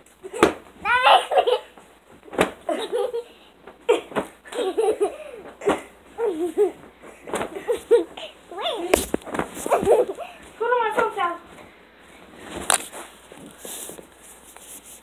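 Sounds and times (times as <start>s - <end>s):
pillows thumping: 1.7s - 3.0s, 3.6s - 8.1s, 8.8s - 11.6s
girls laughing and giggling: 2.7s - 3.4s, 4.0s - 5.6s.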